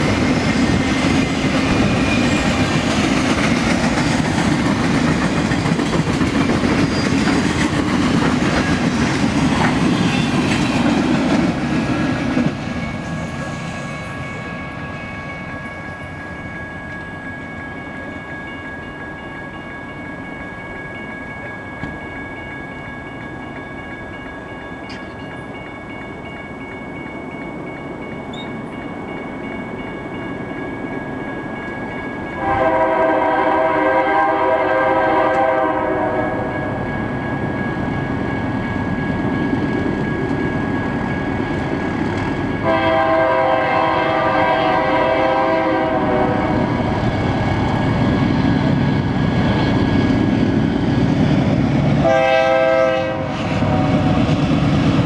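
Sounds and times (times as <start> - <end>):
crossing bell ringing: 0.0 - 50.6
train rumble: 0.0 - 55.0
locomotive air horn blowing: 32.4 - 36.5, 42.6 - 46.8, 52.0 - 54.2.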